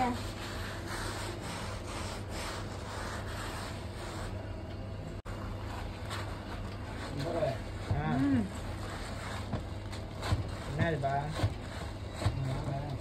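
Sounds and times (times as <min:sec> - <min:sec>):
dry scraping of sweet mixture: 0:00.0 - 0:04.6, 0:05.3 - 0:13.0
steady low hum: 0:00.0 - 0:13.0.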